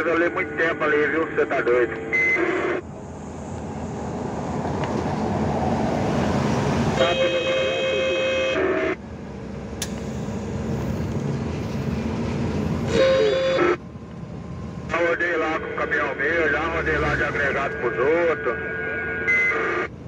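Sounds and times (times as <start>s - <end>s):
truck engine and tyres rumbling: 0.0s - 20.0s
vehicle horn: 7.0s - 9.0s, 12.8s - 13.8s.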